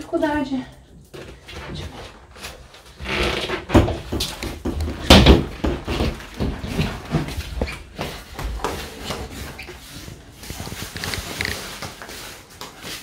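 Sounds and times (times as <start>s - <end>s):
rustling: 1.1s - 13.0s
knocks of household objects: 3.7s - 7.2s.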